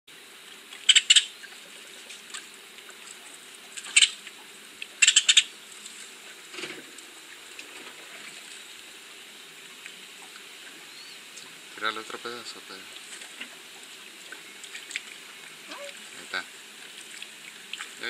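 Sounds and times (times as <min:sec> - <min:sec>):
stream running over rocks: 0:00.1 - 0:18.0
sharp high-pitched clicks: 0:00.8 - 0:01.3, 0:04.8 - 0:05.5.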